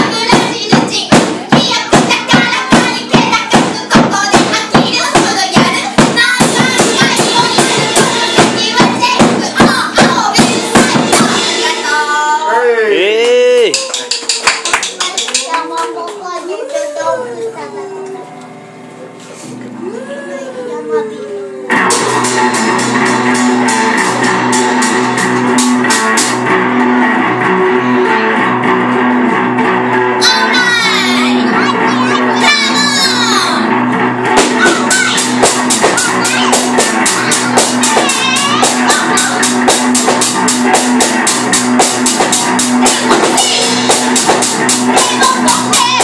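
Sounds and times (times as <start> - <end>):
fast cymbal hits: 0.0 - 12.4, 21.8 - 26.5, 34.3 - 46.0
rock drum kit: 0.0 - 12.5, 21.7 - 46.0
electric bass guitar: 17.3 - 46.0.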